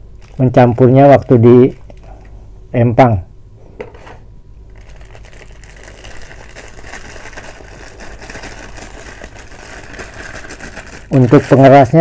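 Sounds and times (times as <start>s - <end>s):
low steady hum: 0.0s - 12.0s
plastic bag crinkling: 0.1s - 2.4s, 4.7s - 12.0s.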